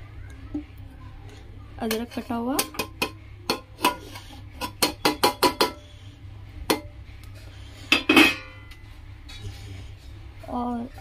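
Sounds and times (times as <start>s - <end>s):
metal plate clinking on pot rim: 7.9s - 8.7s.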